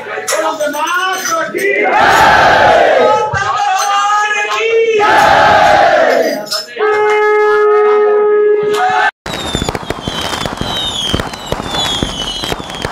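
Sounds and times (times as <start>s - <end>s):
crowd shouting: 1.7s - 3.7s, 4.4s - 6.5s, 8.6s - 9.2s
conch shell blown: 6.8s - 8.8s
fireworks crackling and whistling: 9.3s - 12.9s.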